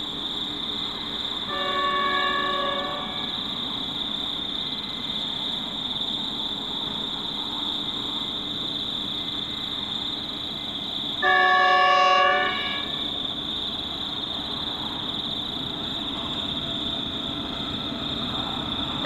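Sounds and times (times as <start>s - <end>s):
distant train rumble: 0.0s - 19.0s
locomotive horn chord: 1.5s - 3.4s, 11.2s - 13.0s.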